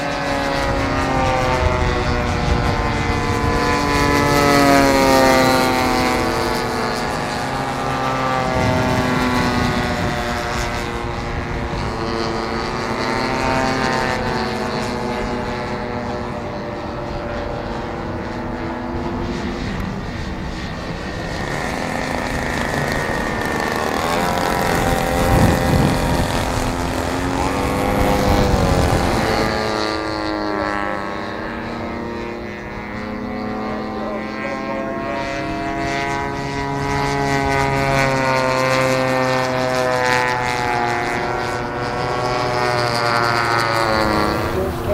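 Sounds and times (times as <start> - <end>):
model airplane engine and propeller: 0.0 - 44.9.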